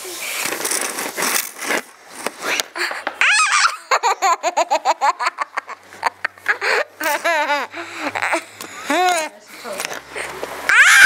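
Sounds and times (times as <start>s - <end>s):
young child laughing: 2.8s - 9.4s.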